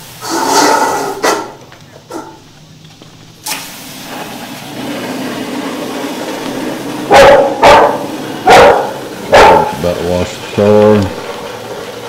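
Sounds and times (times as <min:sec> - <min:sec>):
machine hum with hiss: 0:00.0 - 0:12.0
dog barking: 0:07.1 - 0:09.8.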